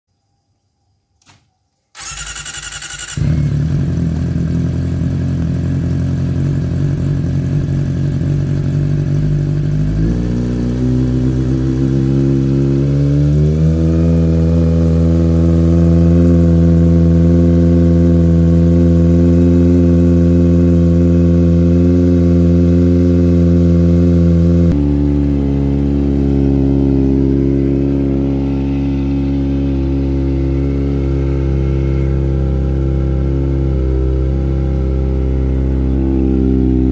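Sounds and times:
motorcycle starter cranking: 2.0s - 3.9s
motorcycle engine idling: 2.0s - 12.9s, 16.7s - 36.9s.

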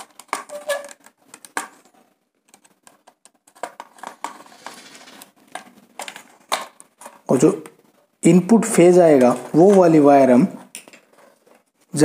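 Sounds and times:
wire clicks and rustles: 0.0s - 8.2s.

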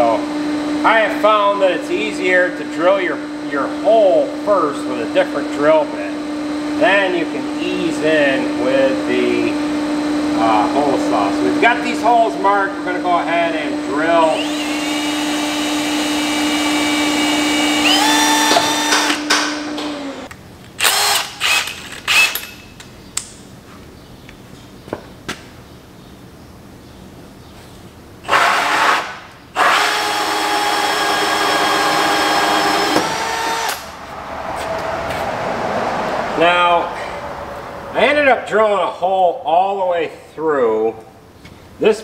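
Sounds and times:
cordless drill whining: 14.3s - 22.6s, 28.2s - 33.9s.

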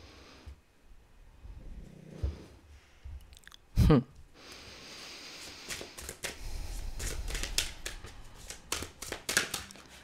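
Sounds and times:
cards being shuffled: 5.4s - 10.0s.

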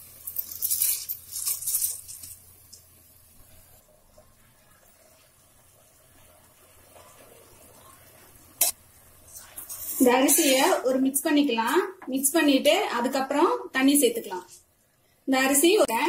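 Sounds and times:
rice pouring into a pot: 0.0s - 2.9s.

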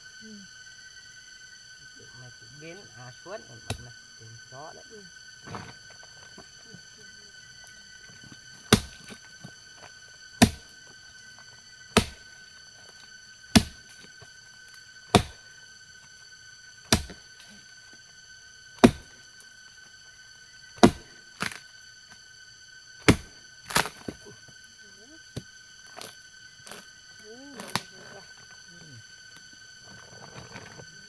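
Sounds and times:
hoe striking the ground: 8.6s - 9.2s, 10.4s - 10.7s, 11.9s - 12.3s, 13.5s - 14.0s, 15.1s - 15.4s, 16.9s - 17.3s, 18.8s - 19.2s, 20.8s - 21.6s, 23.0s - 24.2s.

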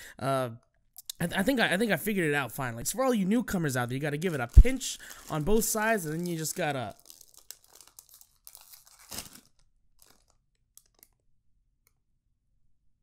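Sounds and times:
snack bag crinkling and tearing: 3.9s - 11.2s.

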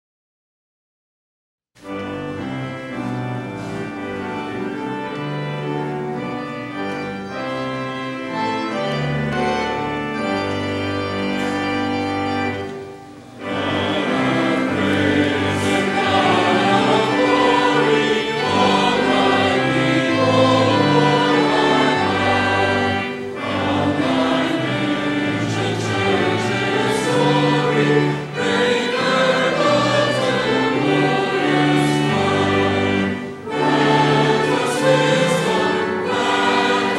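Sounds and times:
instrumental held chords: 1.8s - 36.9s
voices singing sacred music: 8.3s - 36.9s.

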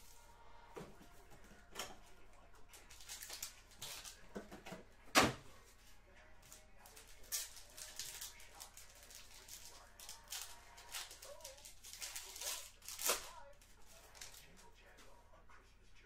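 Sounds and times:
cardboard and foil rustling: 0.0s - 5.8s, 6.4s - 14.7s
foil crackling: 2.7s - 4.3s, 6.4s - 14.6s.

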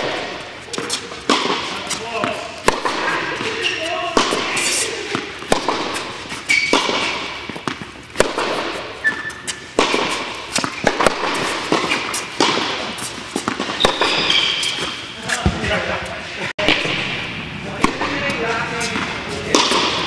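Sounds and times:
shoe squeaks: 0.6s - 2.4s, 3.1s - 5.0s, 5.9s - 8.0s, 8.8s - 15.6s
tennis ball pops: 6.7s - 8.8s.

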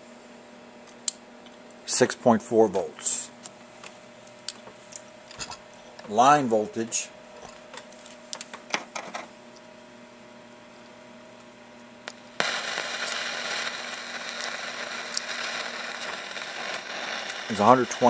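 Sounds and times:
faint hum: 0.0s - 18.0s
static hiss from speaker: 1.8s - 9.4s, 10.7s - 18.0s.

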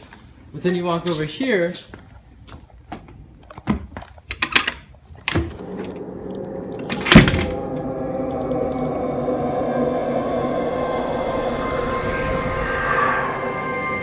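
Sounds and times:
eerie music drone: 5.4s - 14.0s.

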